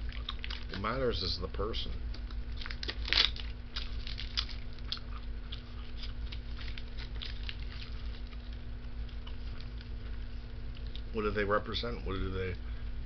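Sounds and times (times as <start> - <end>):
person chewing: 0.0 - 0.7, 2.1 - 11.1
box fan humming: 0.0 - 13.0.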